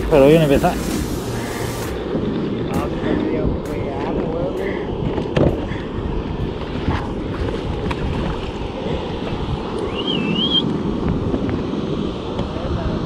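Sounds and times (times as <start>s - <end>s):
wind buffeting microphone: 0.0s - 13.0s
wavering high whistle: 9.9s - 10.7s.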